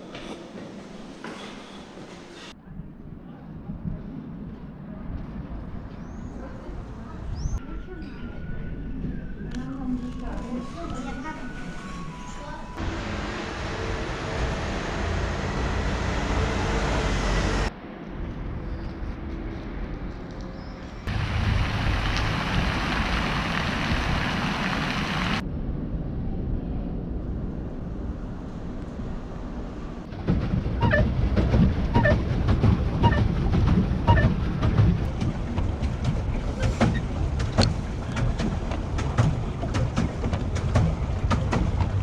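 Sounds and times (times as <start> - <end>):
fountain jets splashing: 21.1 - 25.4.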